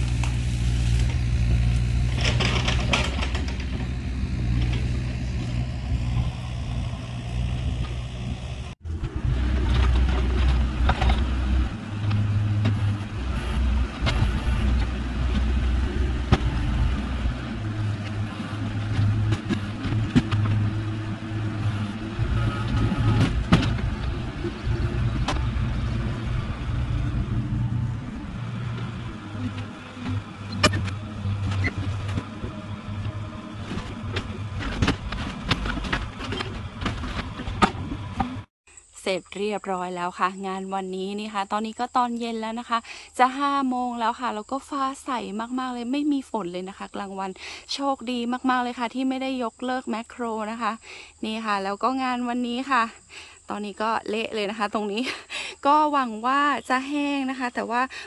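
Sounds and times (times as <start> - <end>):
excavator diesel engine rumbling: 0.0 - 38.5
machine clanks and knocks: 2.1 - 5.1, 29.5 - 38.4.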